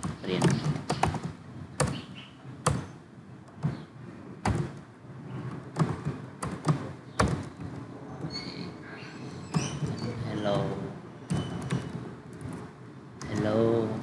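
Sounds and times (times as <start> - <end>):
computer keyboard typing: 0.0 - 2.0, 5.6 - 7.7.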